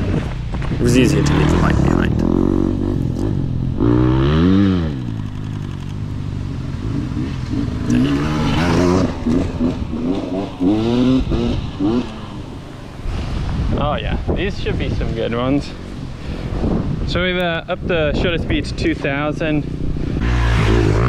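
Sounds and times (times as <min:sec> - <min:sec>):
dirt bike engine revving: 0:00.0 - 0:13.6, 0:19.2 - 0:21.0.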